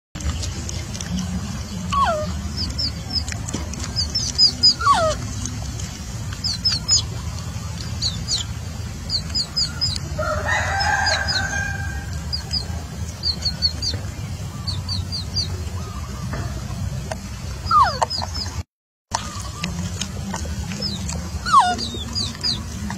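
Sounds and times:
steady low rumble: 0.2 - 18.6, 19.2 - 22.9
chicken chirping: 0.2 - 22.9
chicken clucking: 0.2 - 22.9
chicken squealing: 1.8 - 5.6, 6.3 - 16.6, 17.6 - 22.9.

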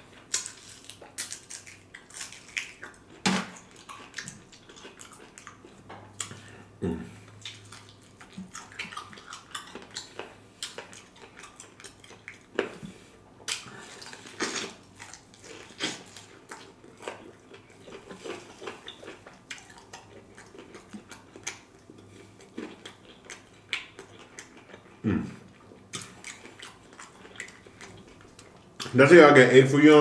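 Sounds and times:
person chewing chicken wings: 0.1 - 29.0.

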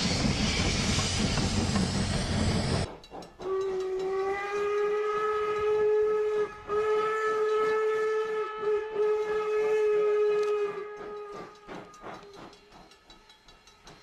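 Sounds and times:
locomotive whistle blowing: 3.4 - 12.2.

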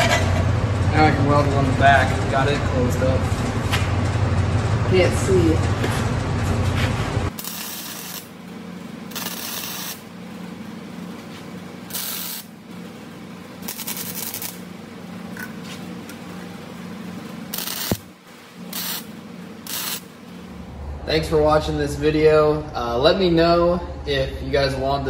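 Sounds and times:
steady low hum: 0.0 - 25.0
welder hissing bursts: 7.4 - 8.3, 9.1 - 10.0, 11.9 - 12.5, 18.7 - 19.0, 19.7 - 20.0.

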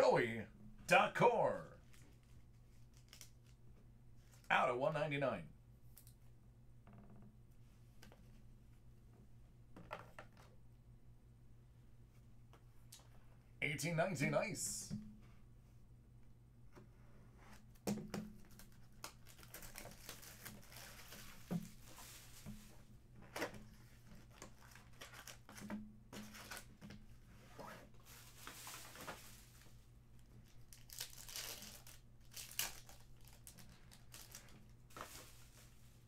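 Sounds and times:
foil wrappers crinkling and tearing: 18.5 - 21.4, 24.5 - 25.6, 30.5 - 35.3.

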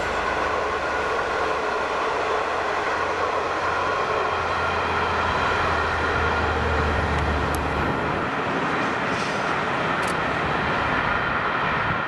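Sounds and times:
locomotive engine hum: 0.0 - 12.0
train carriages rumbling on rails: 0.0 - 12.0.

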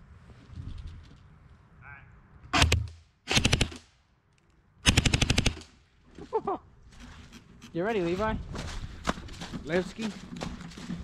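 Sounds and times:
airsoft gun rapid firing: 2.6 - 3.8, 4.8 - 5.7.

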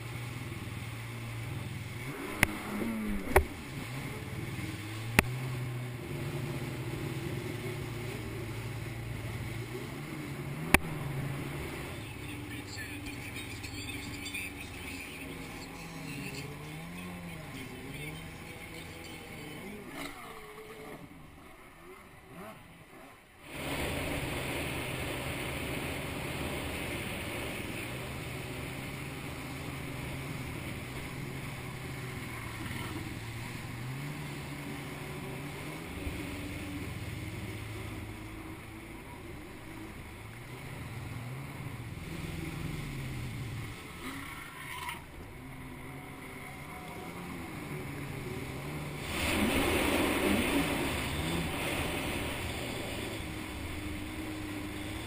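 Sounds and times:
jet ski engine: 0.0 - 55.0
spray hissing off hull: 48.9 - 55.0.

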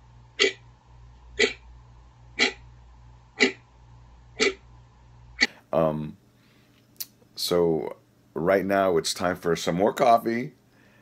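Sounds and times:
faint low hum: 0.0 - 11.0
wall clock ticking: 0.4 - 0.6, 1.4 - 1.6, 3.4 - 3.6, 4.4 - 4.6.

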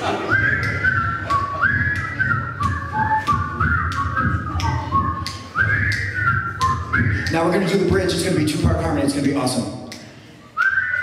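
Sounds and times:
whistled melody: 0.1 - 7.8, 10.5 - 11.0
steady tapping beat: 0.4 - 10.2.

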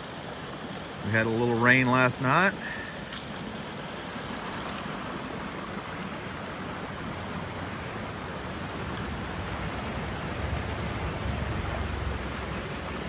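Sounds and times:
creek water rushing over rocks: 0.0 - 13.0.

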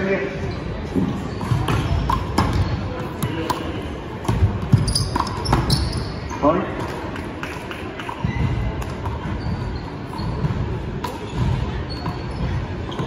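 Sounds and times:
low murmur of hall: 0.0 - 13.0
shoe squeaks: 0.4 - 3.7, 4.7 - 6.7, 8.0 - 13.0.

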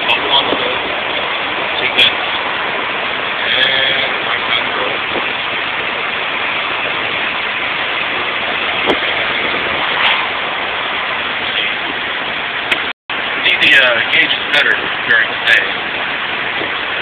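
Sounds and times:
road and wind noise: 0.0 - 17.0.

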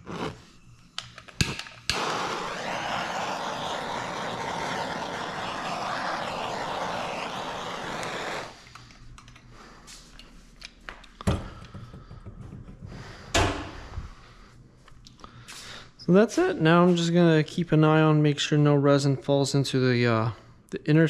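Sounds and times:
heat gun blowing: 1.4 - 8.8.

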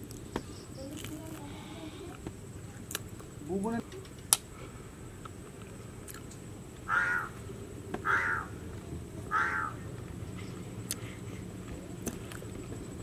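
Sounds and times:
crow cawing: 6.8 - 8.7, 9.3 - 9.9.

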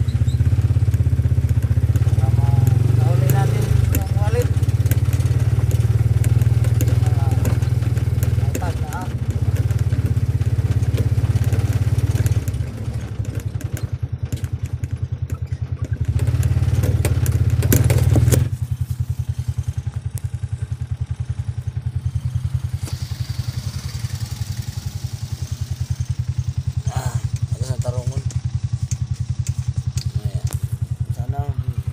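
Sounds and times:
motorcycle engine running: 0.0 - 31.9
sidecar body knocking and clattering: 3.9 - 18.6.

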